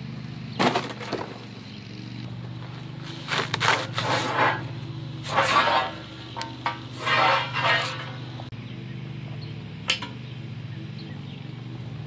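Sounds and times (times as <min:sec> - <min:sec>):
metal sliding out of cardboard box: 0:03.0 - 0:08.3.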